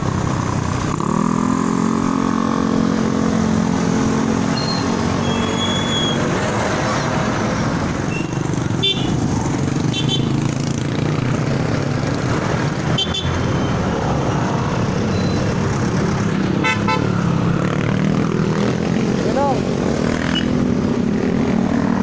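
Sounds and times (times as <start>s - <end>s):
motorcycle engine drone: 0.0s - 22.0s
short horn beeps: 4.6s - 6.2s.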